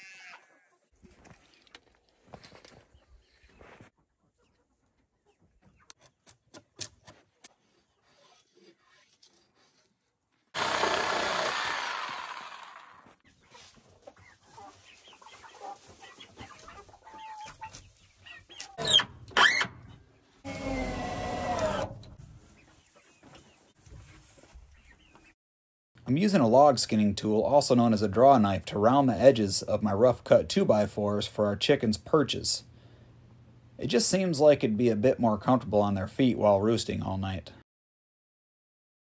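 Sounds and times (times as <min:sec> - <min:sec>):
chickens clucking: 0:03.2 - 0:08.0, 0:13.2 - 0:19.0, 0:22.1 - 0:25.4.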